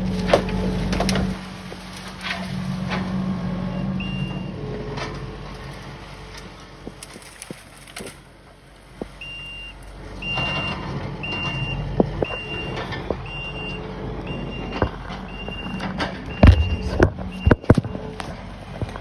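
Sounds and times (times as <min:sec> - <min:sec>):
heavy vehicle engine running: 0:00.0 - 0:19.0
backup alarm beeping: 0:03.7 - 0:04.6, 0:09.2 - 0:18.3.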